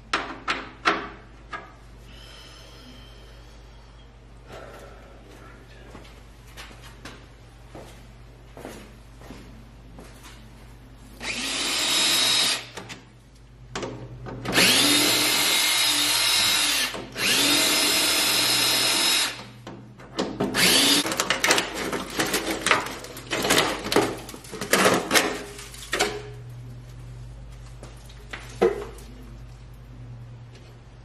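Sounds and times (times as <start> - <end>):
cordless drill motor whine: 11.2 - 12.7, 14.6 - 19.4, 20.6 - 21.0.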